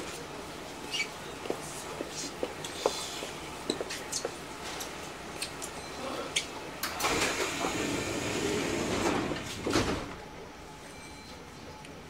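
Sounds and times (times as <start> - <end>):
train doors sliding with air rush: 6.8 - 10.2.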